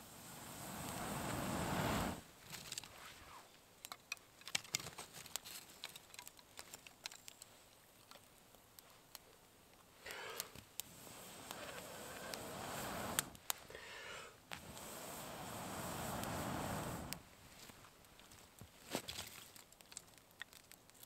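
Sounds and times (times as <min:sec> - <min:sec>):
blowing on fire: 0:00.0 - 0:02.3, 0:10.0 - 0:17.4
fire popping and snapping: 0:00.0 - 0:03.1, 0:03.8 - 0:21.0
twig fire crackling: 0:00.0 - 0:21.0.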